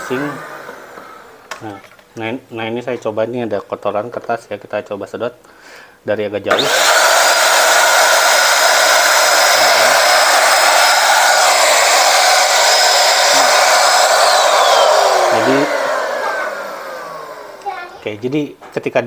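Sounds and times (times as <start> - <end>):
motor spinning down: 0.0 - 1.5, 6.5 - 18.0
vacuum cleaner running: 0.0 - 1.6, 6.5 - 18.2.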